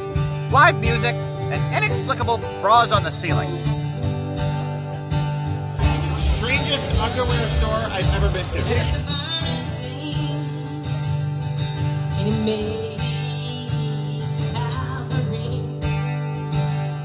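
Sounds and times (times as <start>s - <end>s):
acoustic guitar strumming: 0.0s - 17.0s
person singing: 5.8s - 10.8s.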